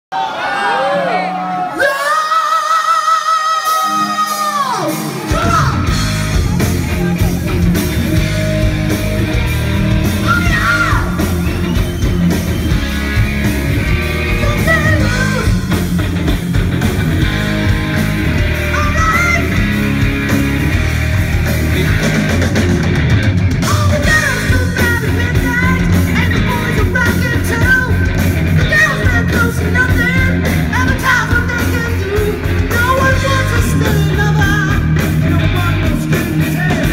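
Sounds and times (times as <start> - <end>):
rock band playing: 3.2 - 36.9
person singing: 23.6 - 36.9.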